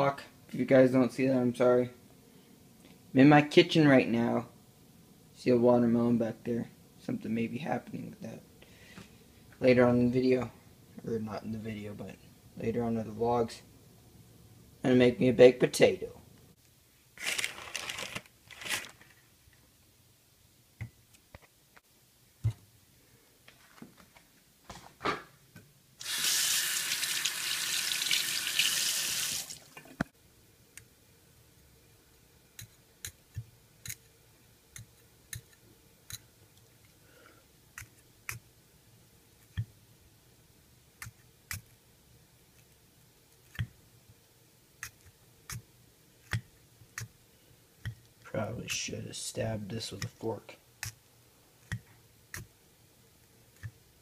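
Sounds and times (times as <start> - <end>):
kitchen tap running: 26.0 - 30.1.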